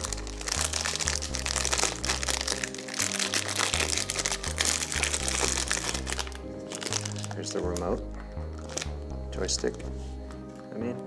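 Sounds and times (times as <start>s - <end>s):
plastic bag crinkling: 0.0s - 8.0s, 8.6s - 9.0s
background music with bass line: 0.0s - 11.0s.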